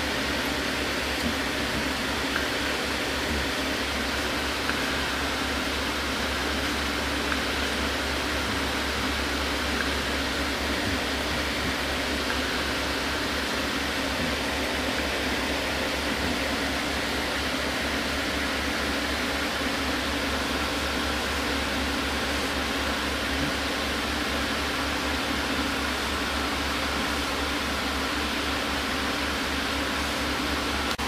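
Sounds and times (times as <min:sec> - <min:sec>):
aquarium equipment humming: 0:00.0 - 0:31.0
even hiss: 0:00.0 - 0:31.0.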